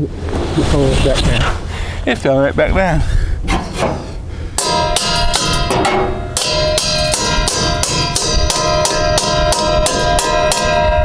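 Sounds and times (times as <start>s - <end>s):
held ringing notes: 4.6s - 11.0s
steady drum beat: 6.4s - 10.8s.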